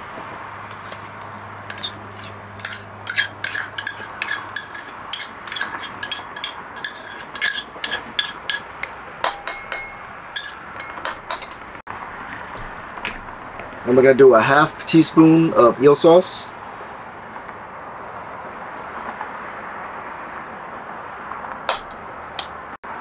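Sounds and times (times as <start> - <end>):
metal spoon tapping metal cup: 2.6 - 11.7, 21.7 - 22.5.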